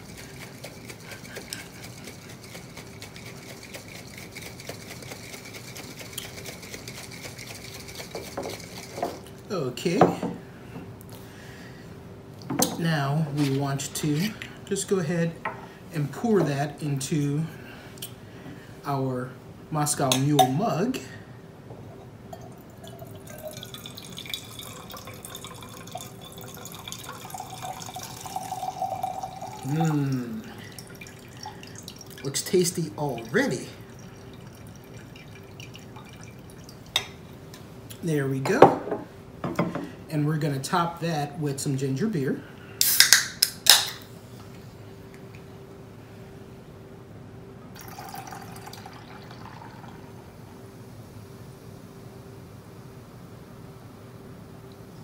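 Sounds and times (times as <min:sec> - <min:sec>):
cocktail shaker shaken hard: 0:00.0 - 0:09.1
liquid pouring into metal mug: 0:22.3 - 0:37.2, 0:47.8 - 0:50.0.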